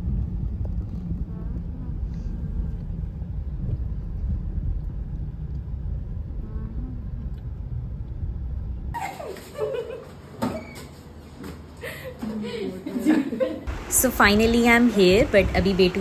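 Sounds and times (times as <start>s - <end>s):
road rumble inside car: 0.0s - 9.0s.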